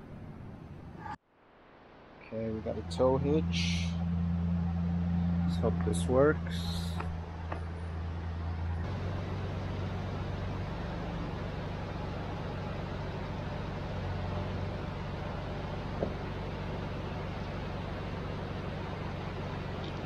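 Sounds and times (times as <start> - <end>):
engine idling: 2.3 - 20.0.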